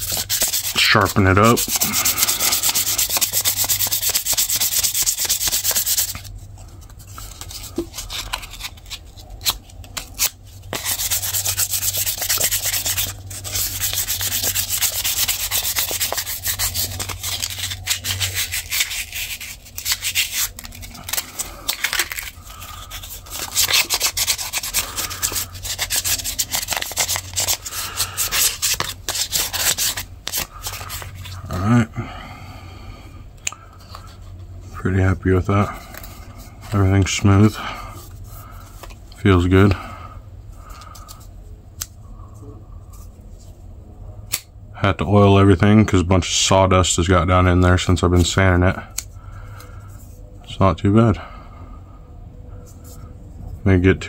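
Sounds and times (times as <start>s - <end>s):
sandpaper rubbing on wood: 0.0s - 6.2s, 10.7s - 31.0s.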